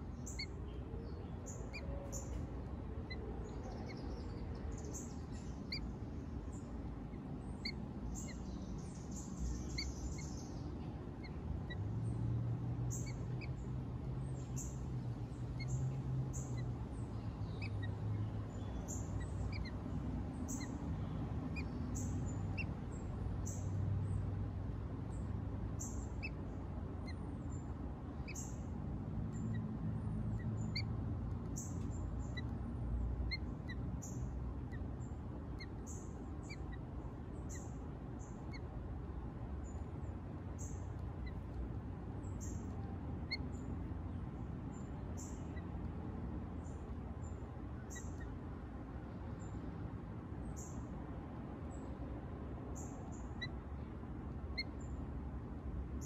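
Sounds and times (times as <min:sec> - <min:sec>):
songbirds chirping: 0:00.0 - 0:56.0.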